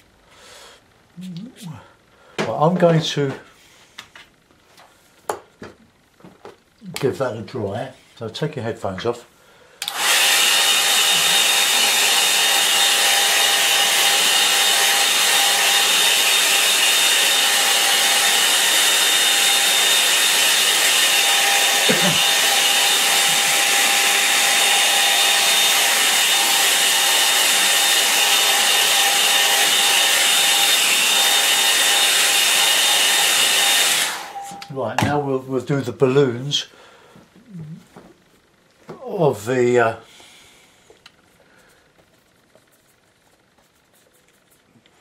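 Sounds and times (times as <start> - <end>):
hair dryer blowing: 9.8 - 35.2
thin whining tones: 34.1 - 35.0.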